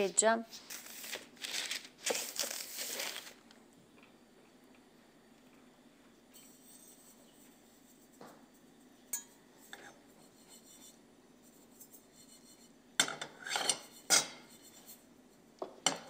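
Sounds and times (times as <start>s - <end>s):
glass clinking on pan: 9.1s - 9.4s.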